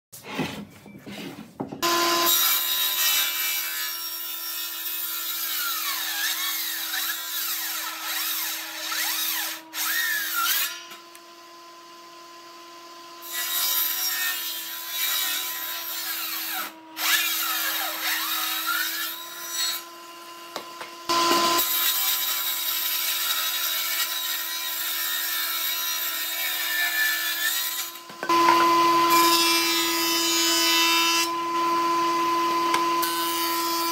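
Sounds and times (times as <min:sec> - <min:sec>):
saw cutting boards: 0:00.2 - 0:33.9
woodworking machine humming: 0:08.5 - 0:13.3, 0:16.6 - 0:22.8, 0:27.8 - 0:33.9.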